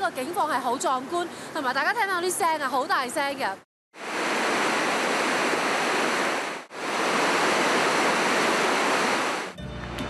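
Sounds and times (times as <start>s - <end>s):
rushing whitewater: 4.0s - 9.6s.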